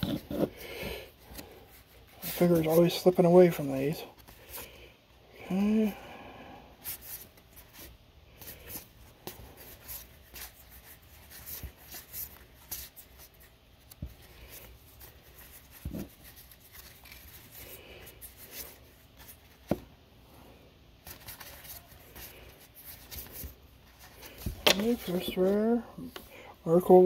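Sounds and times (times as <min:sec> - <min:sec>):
cards sliding on cards: 0:21.0 - 0:26.4.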